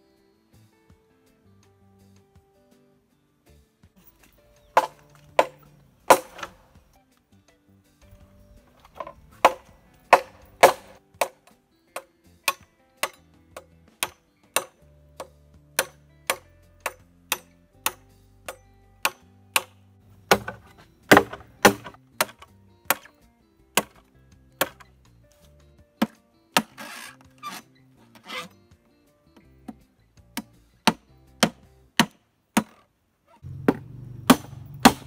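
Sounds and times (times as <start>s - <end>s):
background music: 0.0s - 35.0s
machete chopping bamboo: 4.2s - 6.8s, 8.8s - 23.2s, 23.8s - 24.9s, 26.0s - 28.5s, 30.4s - 32.8s, 33.5s - 35.0s.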